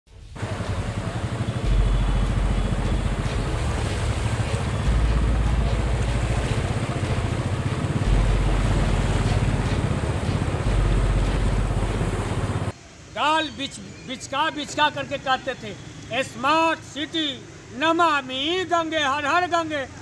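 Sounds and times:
water rushing on streets: 0:00.2 - 0:12.9.

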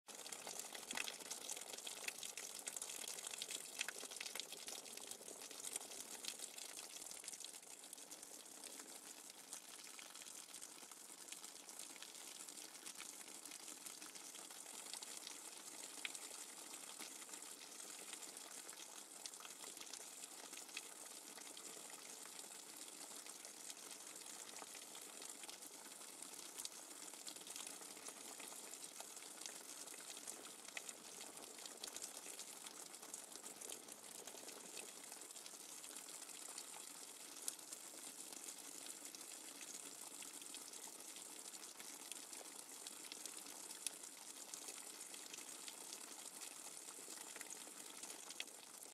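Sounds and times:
rainwater dripping: 0:00.2 - 0:10.5.

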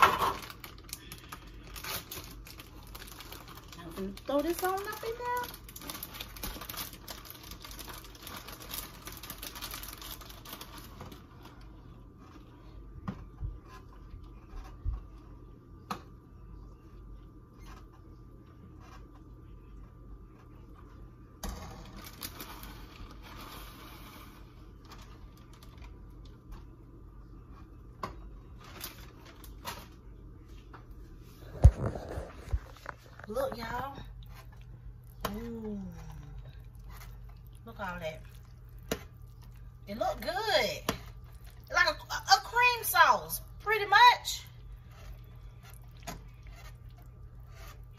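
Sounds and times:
plastic bag rustling: 0:00.0 - 0:12.7, 0:21.9 - 0:26.3, 0:31.2 - 0:41.9
faint steady hum: 0:00.0 - 0:47.9.

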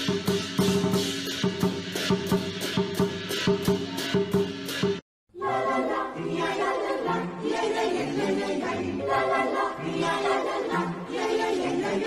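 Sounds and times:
choir singing chords: 0:05.3 - 0:12.0.

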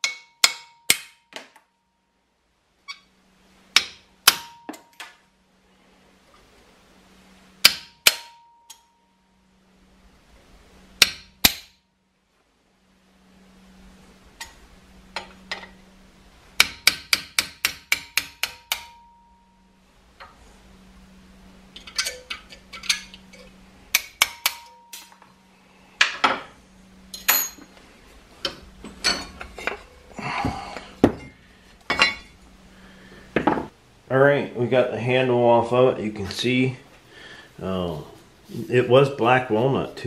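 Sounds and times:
hammer striking metal punch: 0:00.0 - 0:01.7, 0:03.7 - 0:05.2, 0:07.6 - 0:09.0, 0:11.0 - 0:11.8, 0:16.6 - 0:19.5, 0:23.9 - 0:25.2, 0:31.0 - 0:32.3.

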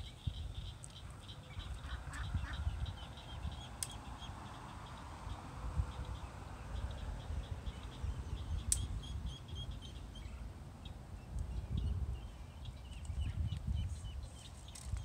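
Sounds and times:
ducklings peeping: 0:00.1 - 0:05.0.

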